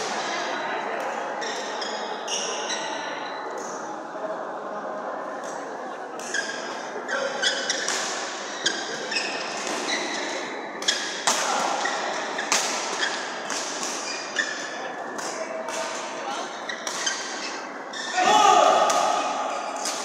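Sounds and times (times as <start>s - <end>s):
sneakers squeaking on court: 6.3s - 14.9s, 16.4s - 18.2s
racket hitting shuttlecock: 9.6s - 17.6s, 18.7s - 20.0s.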